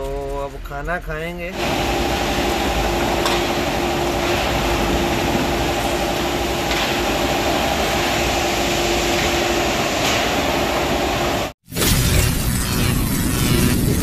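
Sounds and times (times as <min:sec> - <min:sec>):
constant machinery hum: 0:00.0 - 0:14.0
rolling mill machinery noise: 0:01.5 - 0:11.6.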